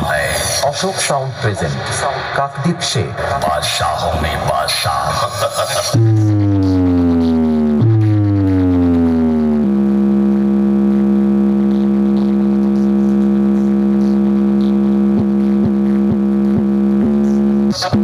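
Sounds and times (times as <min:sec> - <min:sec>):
buzzy synthesized test tone: 0:05.9 - 0:18.0.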